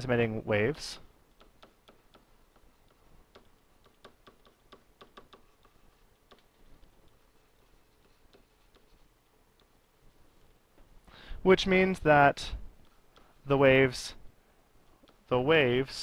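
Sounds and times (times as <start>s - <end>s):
stylus tapping on pen tablet: 1.3s - 7.2s, 8.0s - 9.0s.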